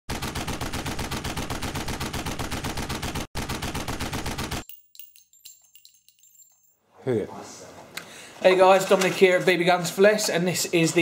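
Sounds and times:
automatic gunfire bursts: 0:00.1 - 0:04.6
faint metal clinks: 0:04.6 - 0:06.9
high ringing: 0:04.6 - 0:07.0.

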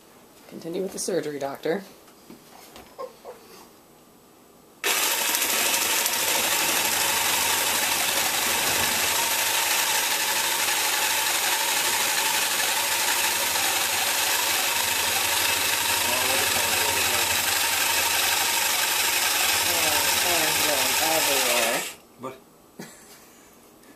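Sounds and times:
jigsaw cutting squash: 0:04.8 - 0:22.0.

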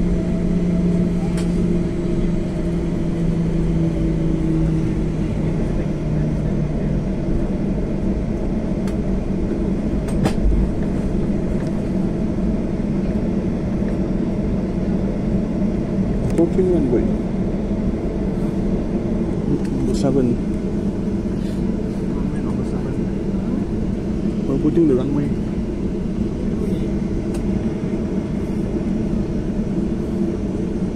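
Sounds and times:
humming tone: 0:00.0 - 0:06.8
low rumble of engines and wheels: 0:00.0 - 0:30.9.

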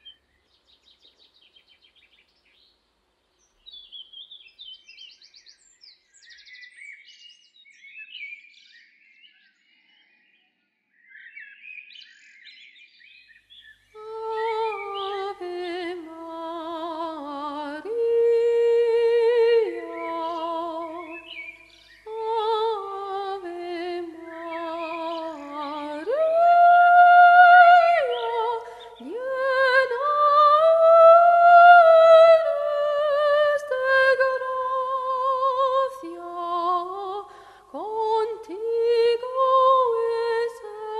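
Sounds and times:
faint bird chirps: 0:00.0 - 0:15.8, 0:18.8 - 0:23.2
woman singing wordless melody: 0:14.0 - 0:40.9.

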